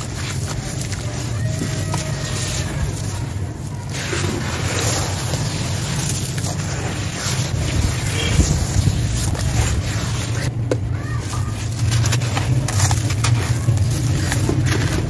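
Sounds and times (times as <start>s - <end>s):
hands squelching wet mud: 0.0s - 10.5s, 11.2s - 15.0s.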